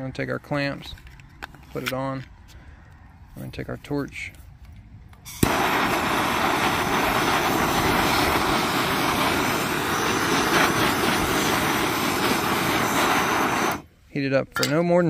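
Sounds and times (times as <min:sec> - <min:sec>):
hand torch flame rushing: 0:05.3 - 0:13.9.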